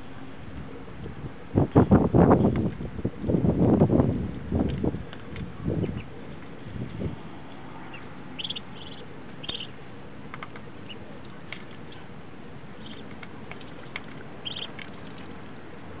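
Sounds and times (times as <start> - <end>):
ducklings feeding clicks: 0.5 - 6.5, 7.4 - 12.1, 12.8 - 16.0
ducklings peeping: 5.8 - 6.2, 7.9 - 9.8, 12.8 - 15.0.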